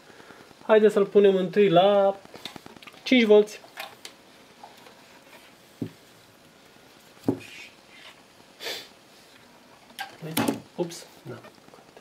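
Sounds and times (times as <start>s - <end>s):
fan knocking on table: 7.2s - 7.5s
brief hiss: 8.6s - 9.0s.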